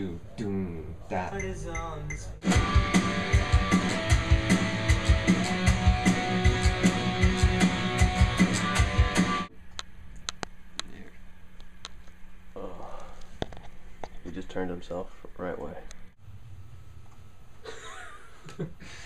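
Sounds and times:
band music with guitar and drums: 0:02.4 - 0:09.5.

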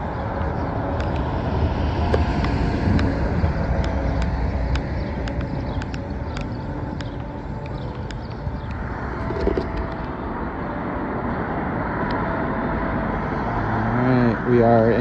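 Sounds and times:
vehicle passing: 0:00.0 - 0:15.0
trekking pole tips clicking on paving: 0:03.8 - 0:10.1.

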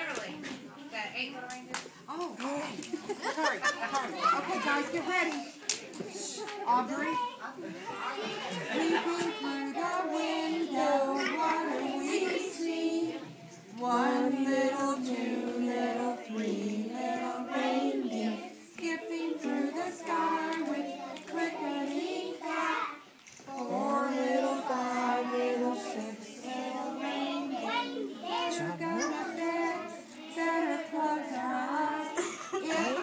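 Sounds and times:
young children singing in unison: 0:07.9 - 0:33.0.

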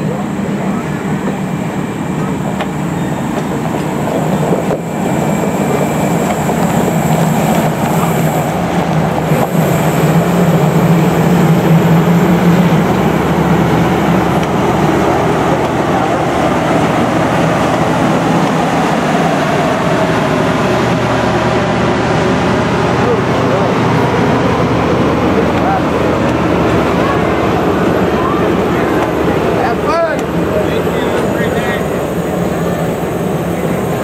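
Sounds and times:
train cars rolling on rails: 0:00.0 - 0:34.0.

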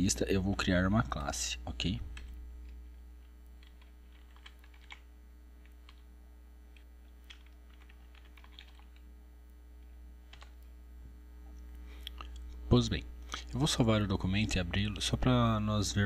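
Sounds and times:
low electrical hum: 0:00.0 - 0:16.0
keyboard typing: 0:02.1 - 0:06.0, 0:06.7 - 0:09.0, 0:10.3 - 0:10.6.

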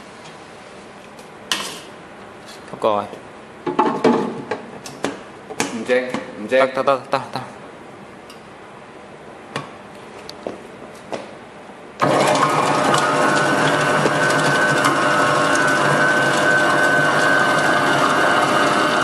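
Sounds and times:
vegetable chopper motor running: 0:12.0 - 0:19.0.

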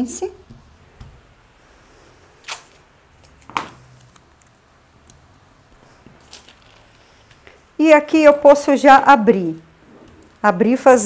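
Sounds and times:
paper rustling: 0:05.8 - 0:07.6.

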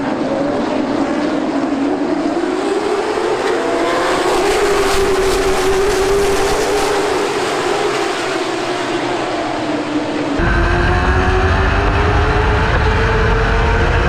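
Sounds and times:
race car engine running hard: 0:00.0 - 0:14.0.

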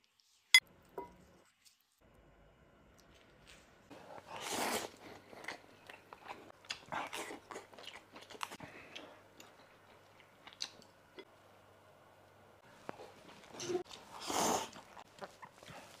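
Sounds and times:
chewing and smacking: 0:04.1 - 0:11.0, 0:12.8 - 0:16.0.

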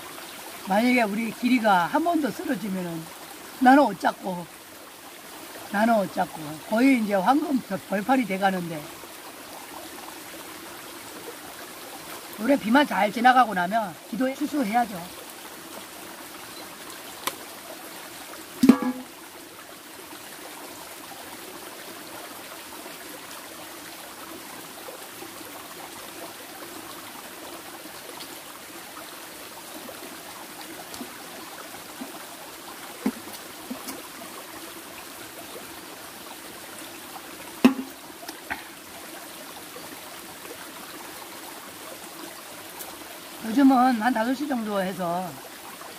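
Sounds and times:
mountain stream flowing: 0:00.0 - 0:45.9
knocks and handling noises: 0:18.6 - 0:19.1, 0:37.6 - 0:38.0.

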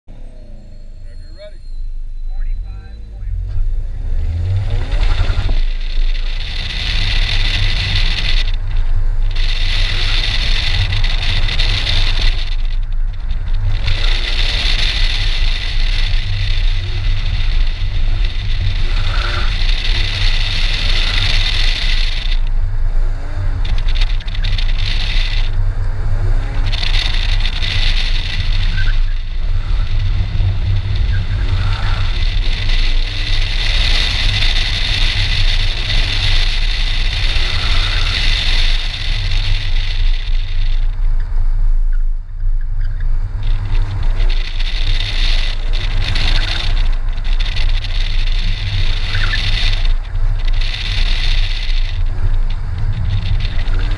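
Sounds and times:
car engine pulling hard: 0:00.0 - 0:53.9
wind rush: 0:03.3 - 0:53.9
supercharger hiss: 0:13.6 - 0:41.0.

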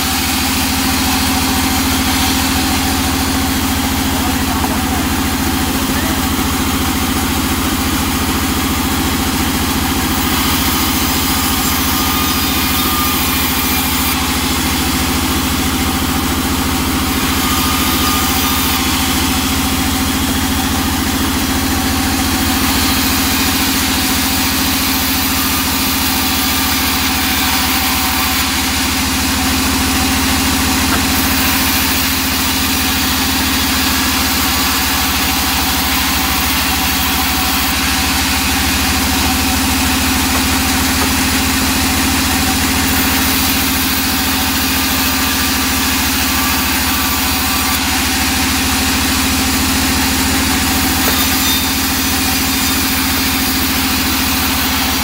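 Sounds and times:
band saw humming: 0:00.0 - 0:55.0
saw cutting wood hiss: 0:21.8 - 0:55.0.

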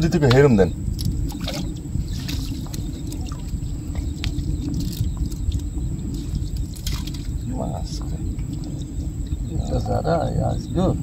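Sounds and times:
water sloshing and trickling: 0:00.0 - 0:09.6
steady low rumble: 0:00.0 - 0:11.0
small splashes and drips: 0:01.0 - 0:07.4.

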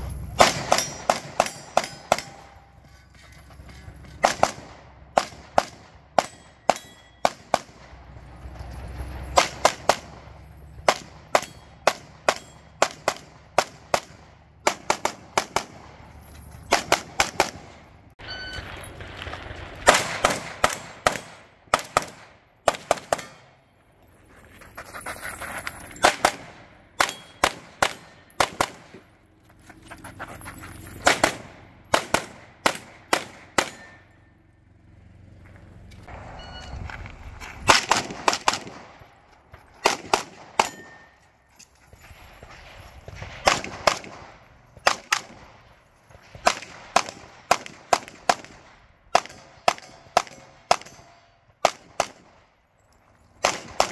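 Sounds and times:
pistol shots: 0:00.3 - 0:02.6, 0:04.2 - 0:07.9, 0:10.8 - 0:16.0, 0:16.7 - 0:18.0, 0:19.8 - 0:23.6, 0:26.0 - 0:29.0, 0:31.1 - 0:34.0, 0:37.7 - 0:39.1, 0:39.8 - 0:41.1, 0:43.3 - 0:45.7, 0:46.3 - 0:52.4, 0:53.4 - 0:53.9.

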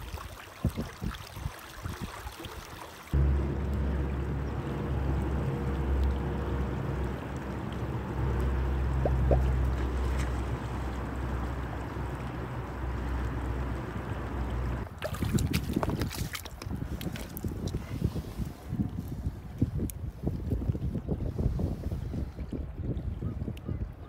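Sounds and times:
water splashing: 0:00.0 - 0:17.8
wind buffeting the microphone: 0:14.7 - 0:24.0.

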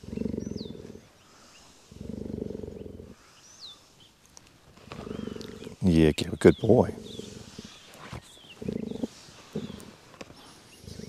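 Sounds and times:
cheetah purring: 0:00.0 - 0:03.6, 0:04.7 - 0:11.0
brushing fur: 0:07.1 - 0:11.0.

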